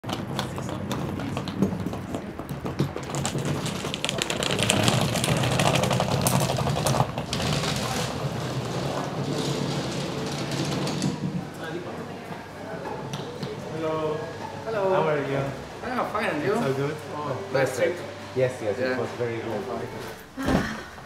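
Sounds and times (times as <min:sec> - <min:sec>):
suitcase wheels clattering on paving: 0:00.0 - 0:11.4
low hum of street traffic: 0:00.0 - 0:20.8.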